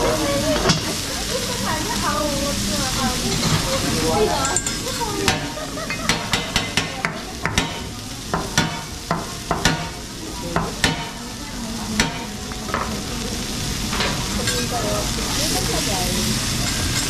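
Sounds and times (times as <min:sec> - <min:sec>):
food sizzling on a steel griddle: 0:00.0 - 0:17.0
metal clicks of spatulas and shaker: 0:04.4 - 0:06.8, 0:16.6 - 0:17.0.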